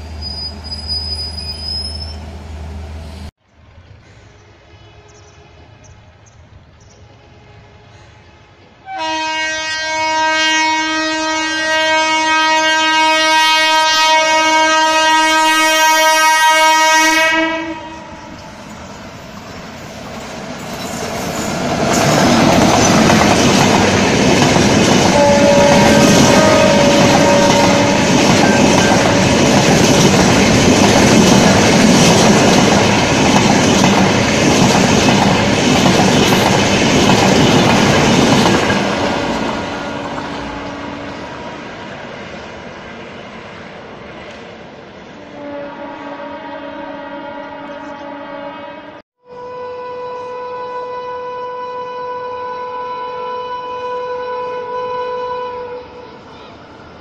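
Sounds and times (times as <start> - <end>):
train rushing past: 0.0 - 49.0
locomotive horn blast: 7.2 - 18.3, 25.0 - 30.0, 38.8 - 41.5, 45.4 - 56.3
wheels clattering on rails: 20.2 - 40.3.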